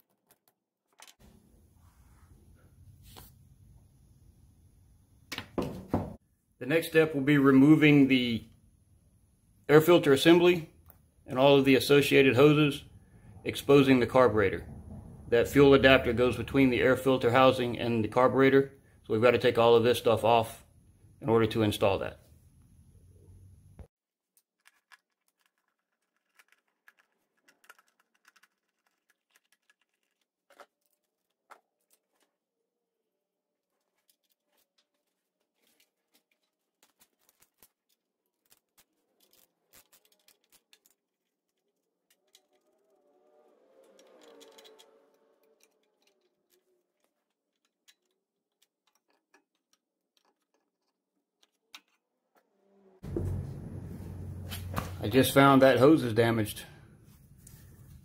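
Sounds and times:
plastic and metal parts clicking: 24.4 - 32.4, 33.6 - 52.0.

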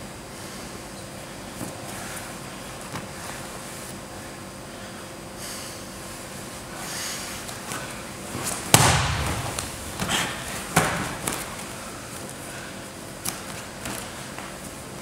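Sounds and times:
slaps on foam mat: 8.4 - 11.6
body thudding on foam mat: 8.4 - 11.7.

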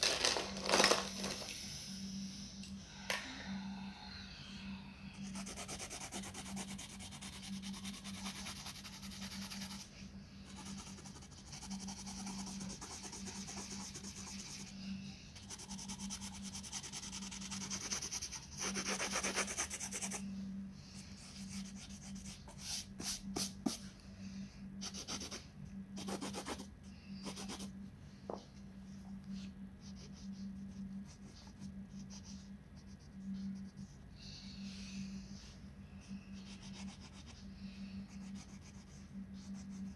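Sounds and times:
low steady hum: 0.0 - 39.9
pencil scratching on paper: 5.3 - 9.9, 10.5 - 14.7, 15.4 - 20.2, 26.0 - 27.7.

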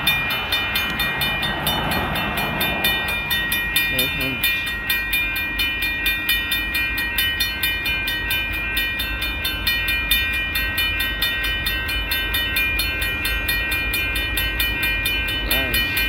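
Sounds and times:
crossing warning bells ringing: 0.0 - 16.0.

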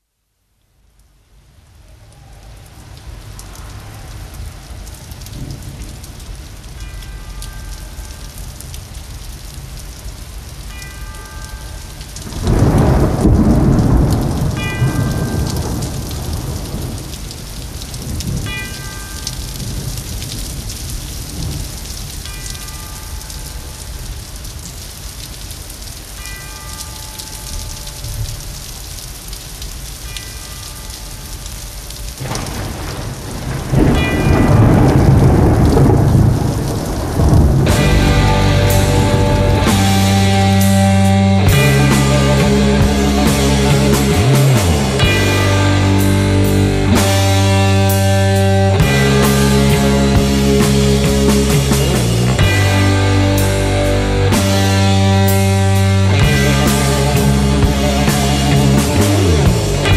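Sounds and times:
rain hiss: 0.0 - 59.9
thunder rolling: 12.2 - 18.6, 32.2 - 59.9.

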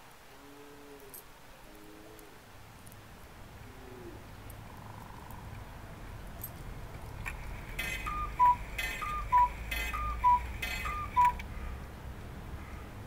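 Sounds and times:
cuckoo clock calling: 7.3 - 11.5.

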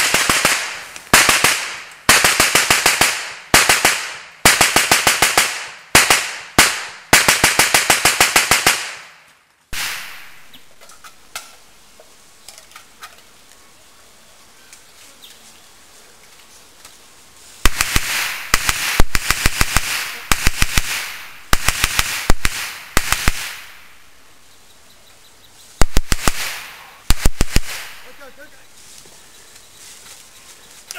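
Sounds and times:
machine gun firing bursts: 0.0 - 9.0, 17.6 - 23.7, 25.8 - 28.0.

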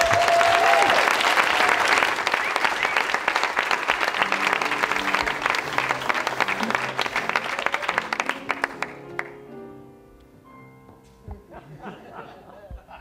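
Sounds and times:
group applauding: 0.0 - 9.4.

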